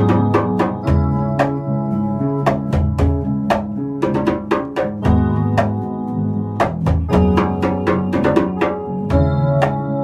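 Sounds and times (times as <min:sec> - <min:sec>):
drum kit hits: 0:00.0 - 0:01.6, 0:02.4 - 0:05.9, 0:06.6 - 0:09.9
live band playing: 0:00.0 - 0:10.0.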